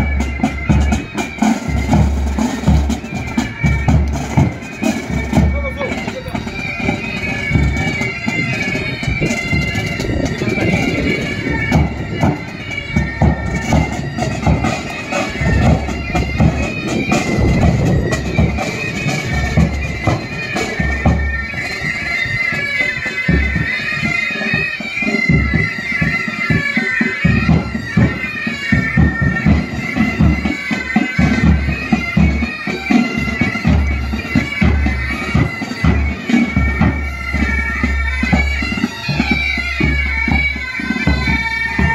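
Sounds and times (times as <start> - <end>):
bass and side drums beating: 0.0 - 6.4, 9.0 - 21.2
bagpipes playing melody: 0.0 - 41.9.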